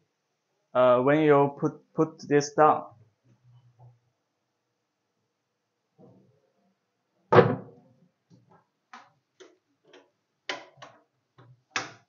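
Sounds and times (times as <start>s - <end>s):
table thumping into place: 7.3s - 7.8s.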